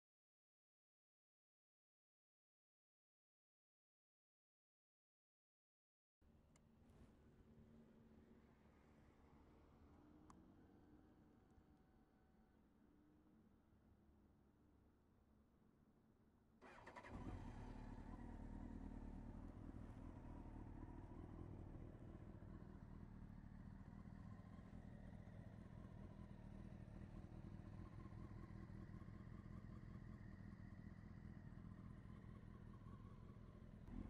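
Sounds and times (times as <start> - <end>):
motorcycle engine starting and idling: 16.6 - 34.0.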